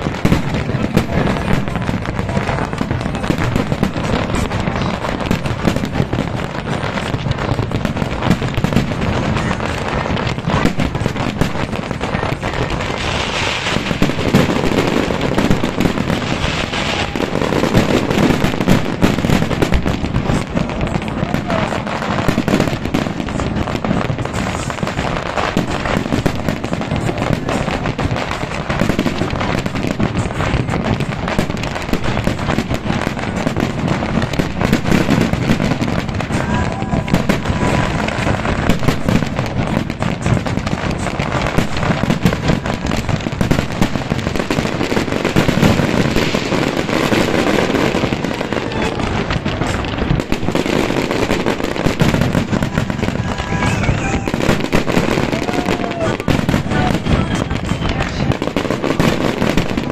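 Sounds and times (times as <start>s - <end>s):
fireworks bangs and crackles: 0.0s - 59.9s.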